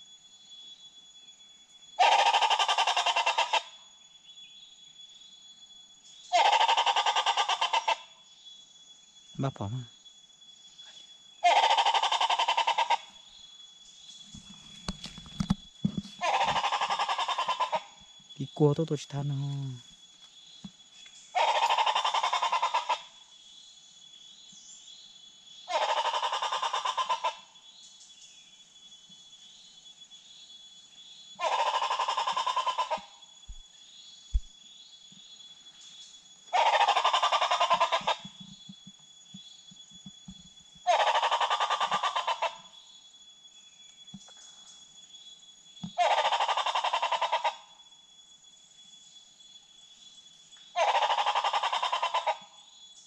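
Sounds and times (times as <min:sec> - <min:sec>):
rattling fowl-like bird call: 0:02.0 - 0:03.7, 0:06.3 - 0:08.1, 0:11.4 - 0:13.2, 0:16.2 - 0:17.9, 0:21.4 - 0:23.1, 0:25.7 - 0:27.4, 0:31.4 - 0:33.1, 0:36.5 - 0:38.4, 0:40.8 - 0:42.7, 0:46.0 - 0:47.7, 0:50.8 - 0:52.5.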